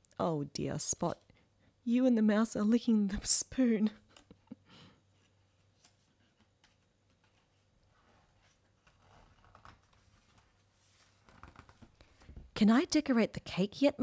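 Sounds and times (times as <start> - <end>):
paper pages rustling: 5.2 - 12.3.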